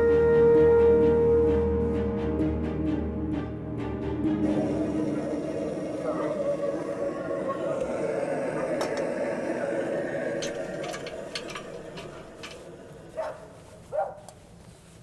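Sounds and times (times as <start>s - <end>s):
background murmur: 4.4s - 14.2s
dog barking: 13.2s - 14.3s.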